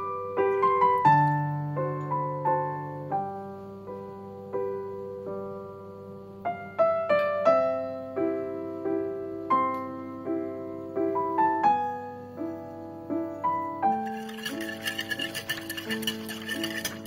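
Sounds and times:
piano music: 0:00.0 - 0:17.0.

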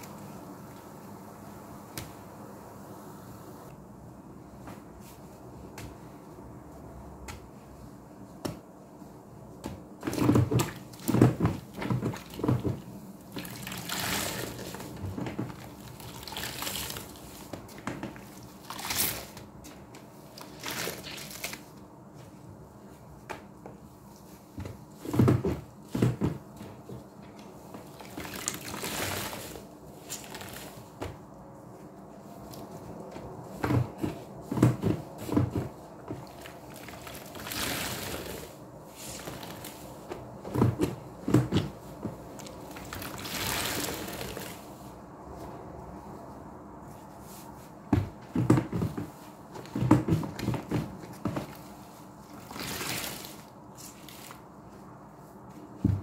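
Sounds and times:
wet sponge squelches: 0:09.6 - 0:21.8, 0:27.3 - 0:31.1, 0:31.7 - 0:45.6, 0:48.4 - 0:55.8
water streaming from sponges: 0:10.1 - 0:17.5, 0:20.3 - 0:21.6, 0:27.8 - 0:30.9, 0:36.2 - 0:39.8, 0:42.4 - 0:44.6, 0:52.2 - 0:54.4.

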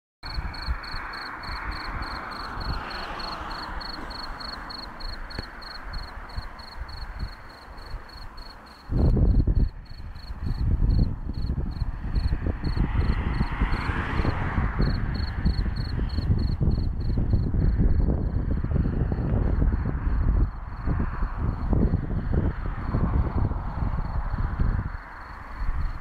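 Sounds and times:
crickets chirping: 0:00.2 - 0:26.0
low rumbling on microphone: 0:06.2 - 0:26.0.

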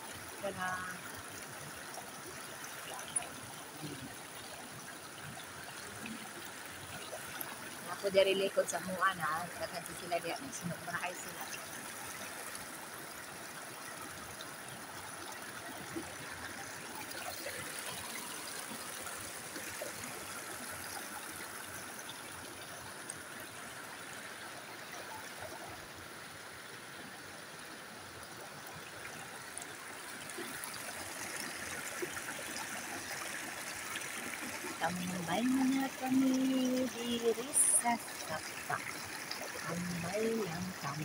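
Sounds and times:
creek flowing over stones: 0:00.0 - 0:41.0.

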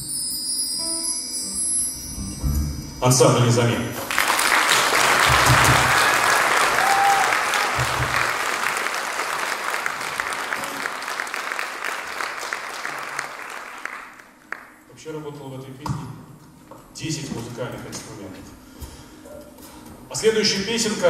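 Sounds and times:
audience applauding: 0:04.1 - 0:14.8.

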